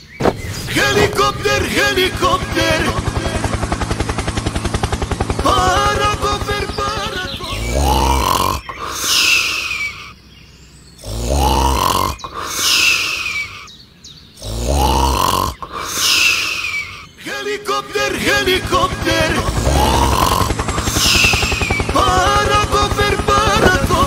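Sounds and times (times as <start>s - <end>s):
cartoon snoring with whistle: 7.4s - 10.0s, 11.0s - 13.7s, 14.4s - 17.0s, 19.2s - 22.0s.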